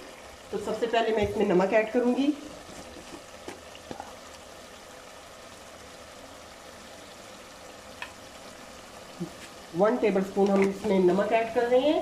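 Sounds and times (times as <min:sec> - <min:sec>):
food sizzling in a pot: 0:00.0 - 0:12.0.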